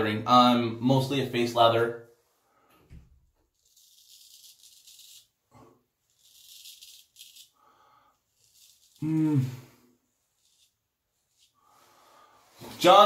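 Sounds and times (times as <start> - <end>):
razor scraping stubble: 3.5 - 5.4, 6.0 - 9.2, 10.2 - 11.6.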